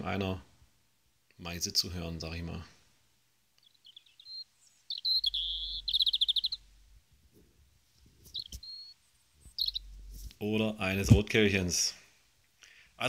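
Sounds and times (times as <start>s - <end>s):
robin song from a recording: 3.5s - 13.0s.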